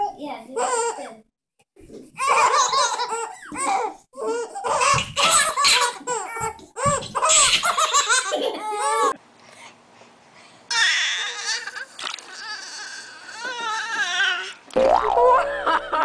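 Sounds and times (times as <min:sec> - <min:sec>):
babies laughing: 0:02.2 - 0:09.2.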